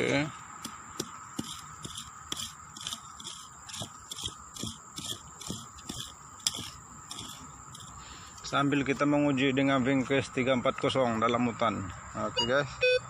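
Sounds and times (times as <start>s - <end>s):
hand tool digging into soil: 0.0s - 8.0s.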